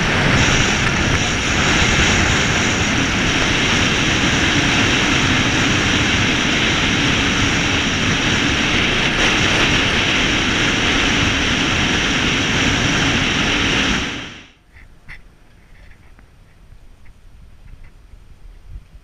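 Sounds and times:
car driving noise: 0:00.0 - 0:14.5
wind rushing: 0:00.0 - 0:14.5.

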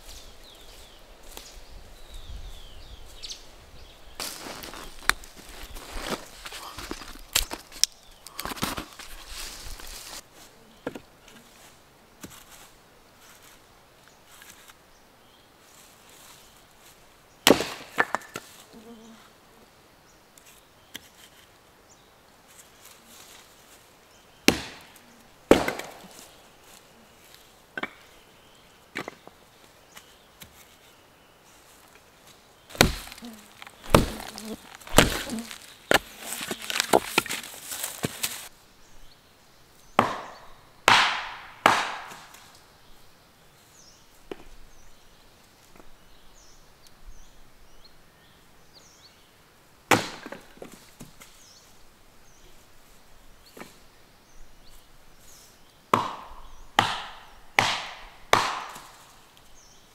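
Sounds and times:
firewood being chopped: 0:04.2 - 0:09.0, 0:17.4 - 0:18.5, 0:24.4 - 0:26.3, 0:27.8 - 0:28.1, 0:29.0 - 0:29.3, 0:32.7 - 0:38.5, 0:40.0 - 0:42.4, 0:49.9 - 0:51.2, 0:55.9 - 0:59.1.

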